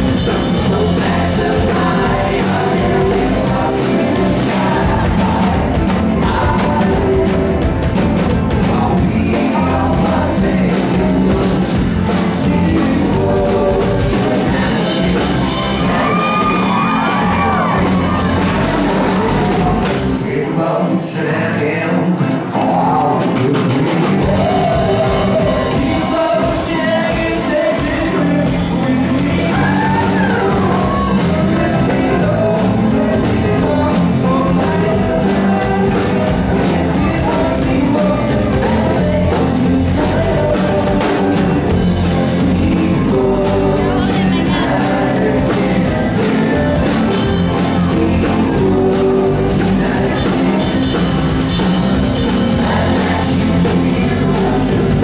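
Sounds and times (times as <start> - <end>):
bass guitar: 0.0 - 55.0
keyboard: 0.0 - 55.0
person singing: 0.0 - 55.0
electric guitar: 21.9 - 55.0.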